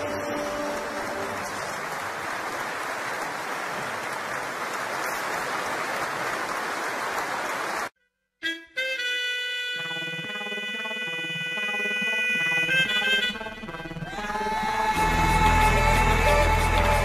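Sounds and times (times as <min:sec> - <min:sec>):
audience applauding: 0:00.0 - 0:07.9, 0:14.1 - 0:17.0.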